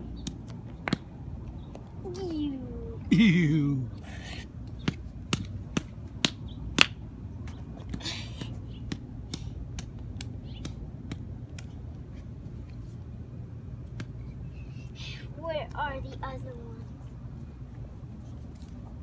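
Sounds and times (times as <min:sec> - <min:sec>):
rubber mallet striking apples: 0:04.8 - 0:07.0.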